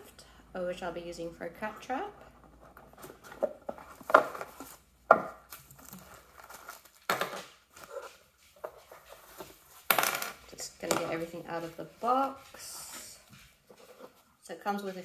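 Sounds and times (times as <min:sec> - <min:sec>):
packaging crinkling and rustling: 0:02.8 - 0:09.8.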